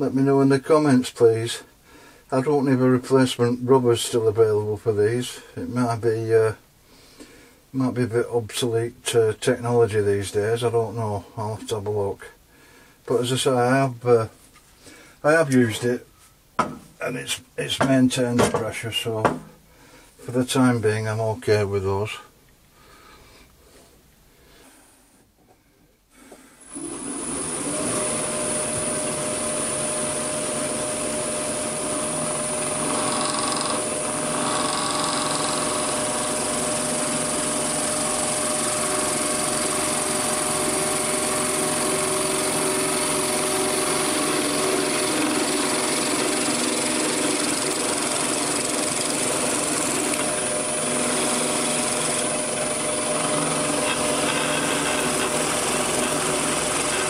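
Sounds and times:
wood lathe cutting timber: 0:26.6 - 0:57.0.

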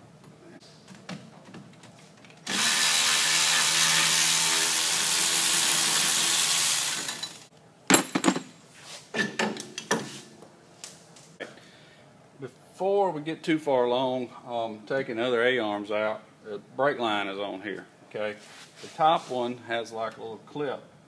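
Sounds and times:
cordless power tool running: 0:02.5 - 0:07.5.

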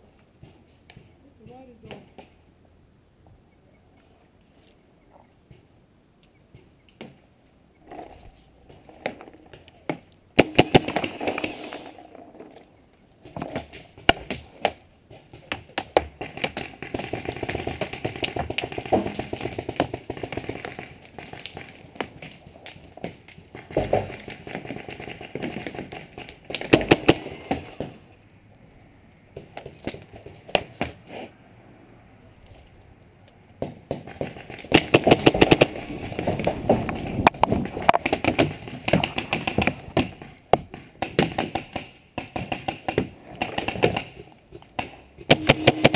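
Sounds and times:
paintball markers firing: 0:14.0 - 0:28.0, 0:33.6 - 0:35.8, 0:37.8 - 0:45.9.

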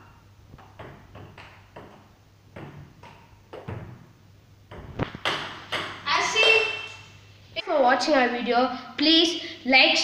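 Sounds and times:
ping-pong ball hitting racket and table: 0:00.0 - 0:04.0, 0:04.7 - 0:06.8.

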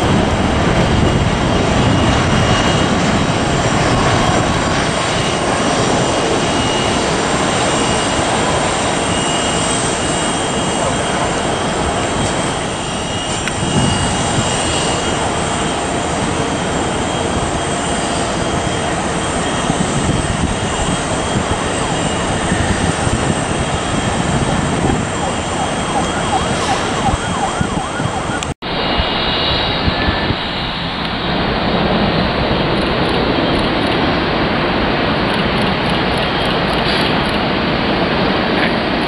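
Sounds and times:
high engine whine: 0:00.0 - 0:39.0
jet engines roaring: 0:00.0 - 0:39.0.

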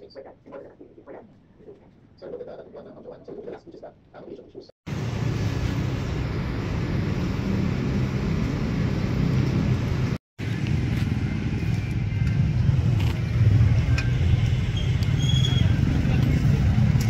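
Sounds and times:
low rumble of traffic: 0:04.9 - 0:17.0.

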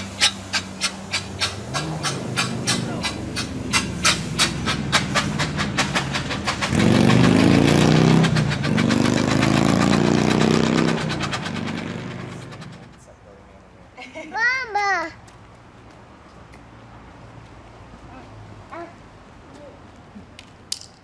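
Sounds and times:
steam hissing: 0:00.0 - 0:07.0
steam car exhaust chuffing: 0:00.0 - 0:12.9.

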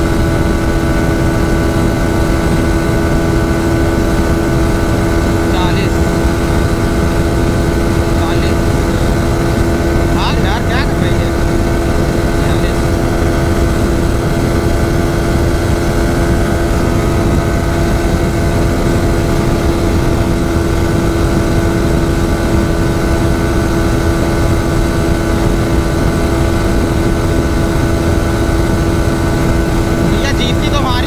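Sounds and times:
motorcycle engine at high revs: 0:00.0 - 0:31.0
wind rush on microphone: 0:00.0 - 0:31.0.

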